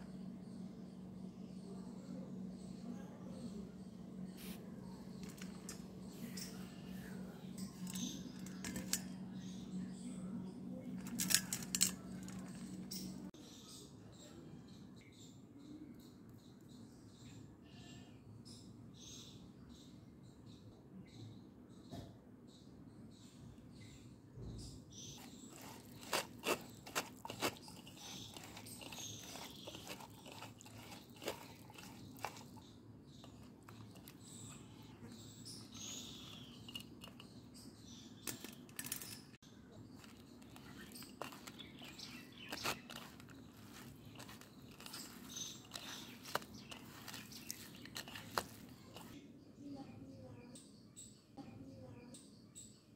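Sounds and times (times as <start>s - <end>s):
hand squishing and crunching food: 25.2s - 32.6s, 40.2s - 49.2s.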